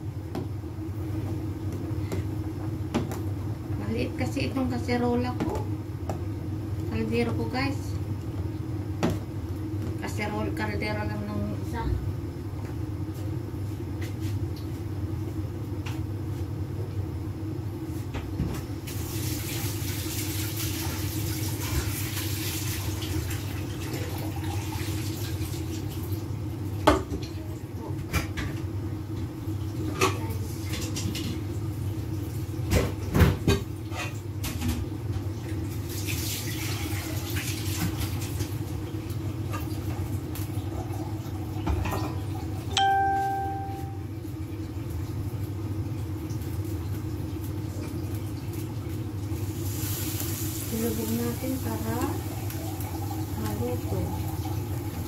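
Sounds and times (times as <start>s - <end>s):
soup boiling and bubbling: 18.8s - 26.8s, 33.7s - 42.7s, 44.1s - 55.0s.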